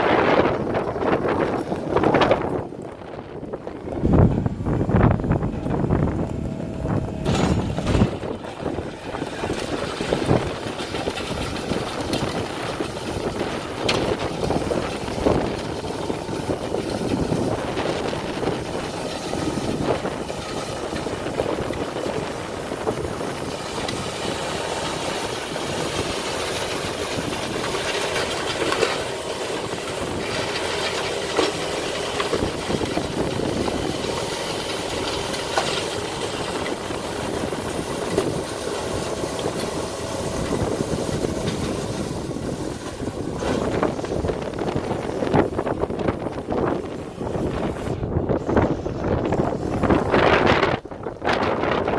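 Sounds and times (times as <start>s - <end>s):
diesel engine running under load: 0.0s - 51.9s
snowblower throwing snow: 3.9s - 51.9s.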